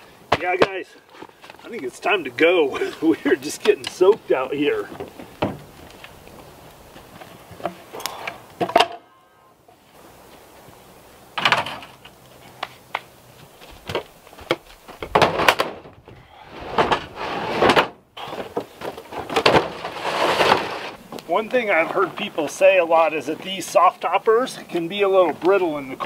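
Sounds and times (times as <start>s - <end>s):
boxes scraping: 0.0s - 7.9s, 14.8s - 23.8s
boxes knocking and bumping: 4.8s - 5.8s, 13.8s - 21.0s.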